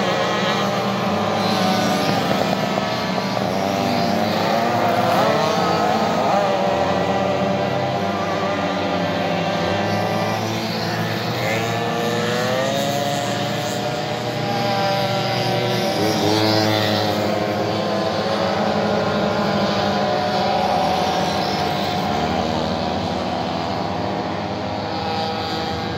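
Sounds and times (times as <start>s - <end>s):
two-stroke moped engines racing: 0.0s - 25.9s.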